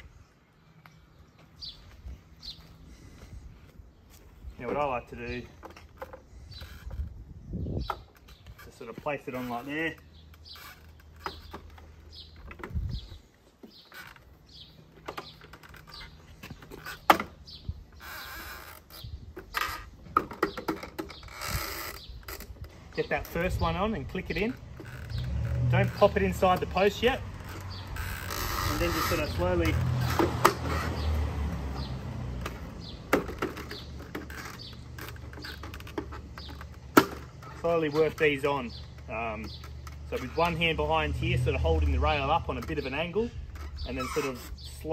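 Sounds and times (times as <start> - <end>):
birds chirping: 0.0 - 44.9
plastic fence parts knocking: 19.4 - 21.3, 31.8 - 40.6.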